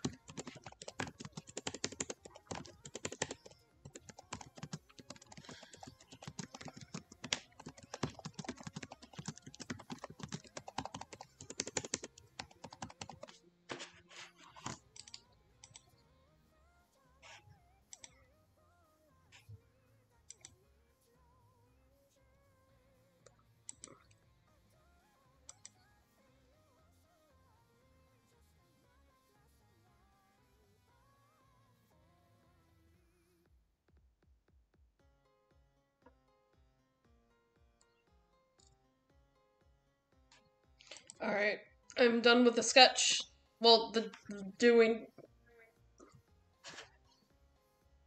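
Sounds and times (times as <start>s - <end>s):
computer keyboard typing: 0.0s - 15.8s.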